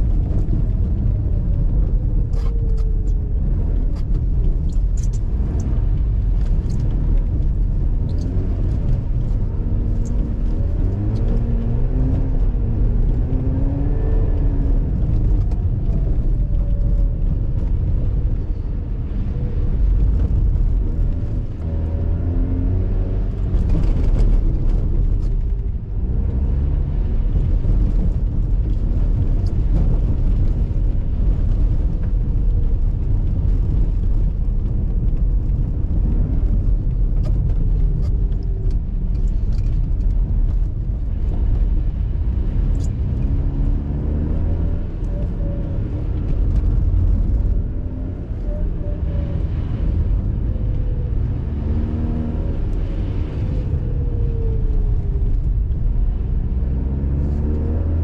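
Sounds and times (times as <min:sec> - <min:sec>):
road and wind rumble: 0:00.0 - 0:58.0.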